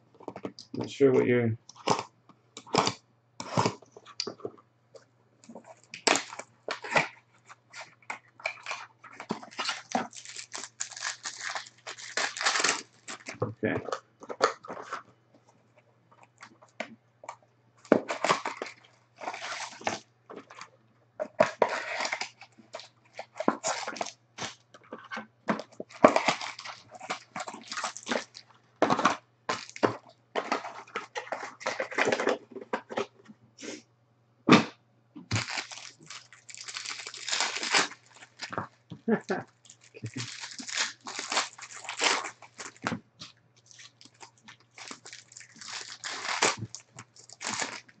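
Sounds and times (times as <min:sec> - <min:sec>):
cellophane crinkling and tearing: 0:05.4 - 0:15.0, 0:17.9 - 0:33.1, 0:35.3 - 0:48.0.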